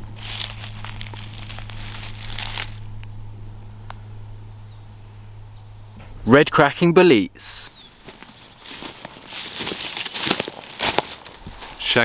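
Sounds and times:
leaf litter crackling and rustling: 0:00.0 - 0:03.1, 0:07.9 - 0:12.0
low steady hum: 0:00.0 - 0:12.0.

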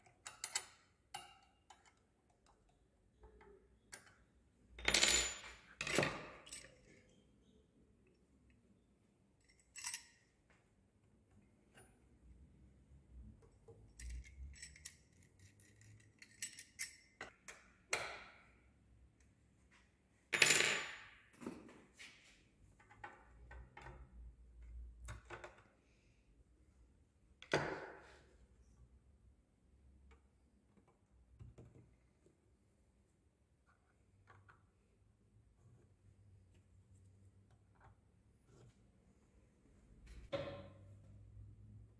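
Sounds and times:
metal parts clinking and knocking: 0:00.0 - 0:07.2, 0:09.4 - 0:10.5, 0:13.7 - 0:18.0.

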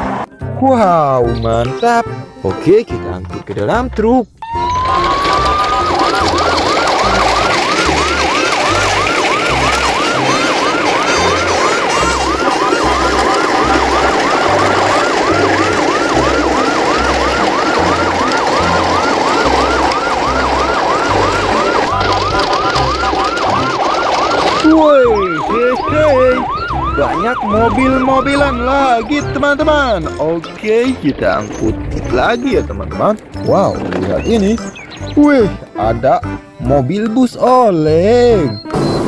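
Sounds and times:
yelping electronic siren: 0:04.4 - 0:35.6.

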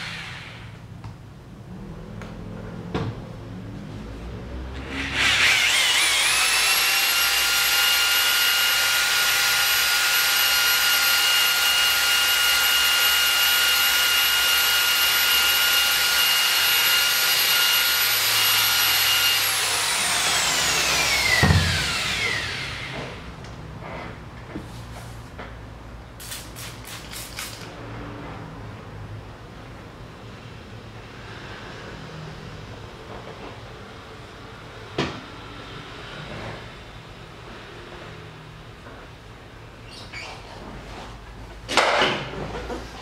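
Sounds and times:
electric polisher whine: 0:05.2 - 0:09.3, 0:17.0 - 0:23.2
thump: 0:21.4 - 0:21.9.

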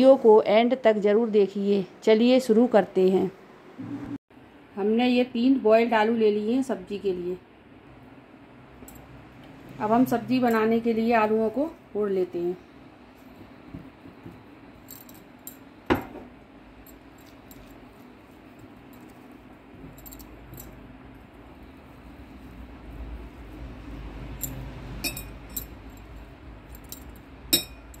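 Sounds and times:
metal clinking on glass: 0:24.4 - 0:26.1, 0:26.7 - 0:28.0.

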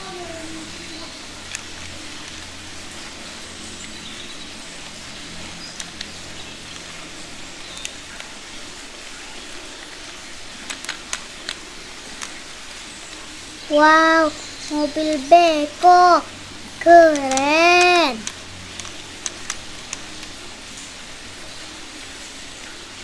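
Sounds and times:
plastic toy parts clicking: 0:10.6 - 0:11.6, 0:12.2 - 0:12.4, 0:17.0 - 0:20.4.

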